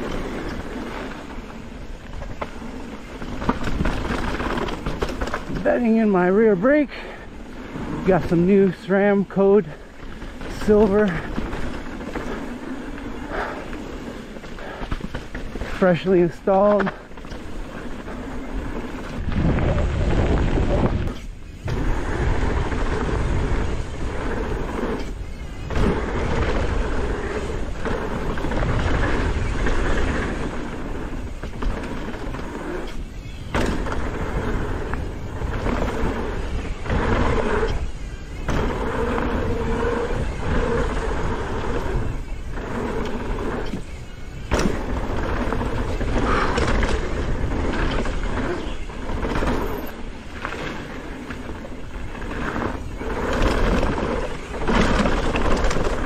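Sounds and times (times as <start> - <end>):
bike rattles and knocks: 0.0 - 56.0
bike tyres rumbling on trail: 0.0 - 56.0.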